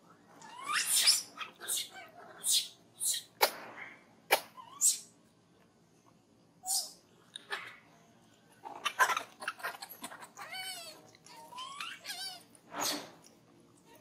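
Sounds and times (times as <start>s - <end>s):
monkeys squealing: 0.4s - 3.3s, 4.6s - 5.1s, 6.6s - 7.8s, 8.7s - 13.0s.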